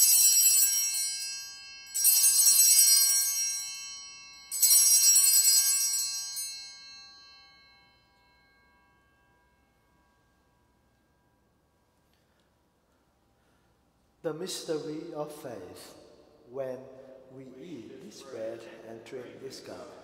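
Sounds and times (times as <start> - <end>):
altar bells ringing: 0.0 - 13.7.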